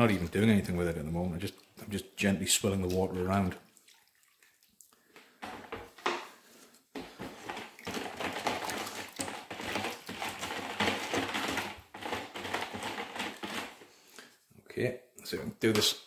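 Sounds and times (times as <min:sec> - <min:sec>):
saw chains rattling in water: 0:07.3 - 0:13.8.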